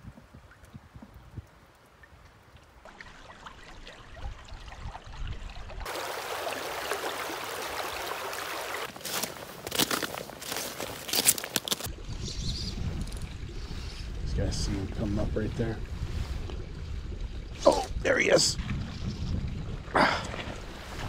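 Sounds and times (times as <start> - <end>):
river water rushing: 5.8 - 9.0
footsteps on loose stones: 8.9 - 11.9.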